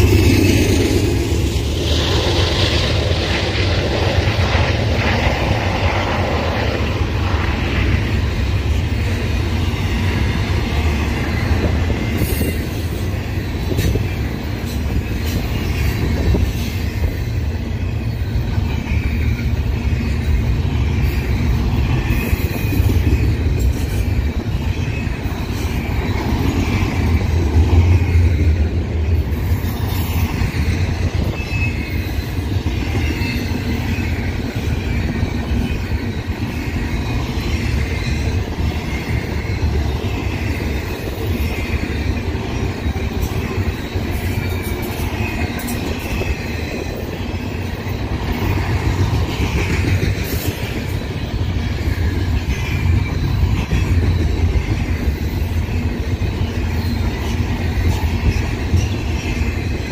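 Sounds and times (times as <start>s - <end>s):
train wheels rumbling on rail: 0.0s - 59.9s
wheel squeal: 29.4s - 59.9s.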